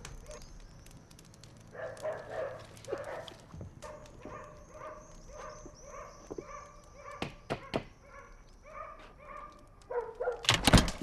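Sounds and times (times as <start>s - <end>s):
dog barking and whining: 1.8s - 10.5s.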